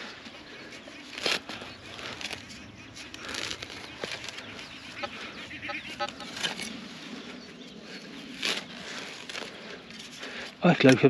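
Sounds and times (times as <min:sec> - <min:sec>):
spade scraping: 0:00.0 - 0:07.2.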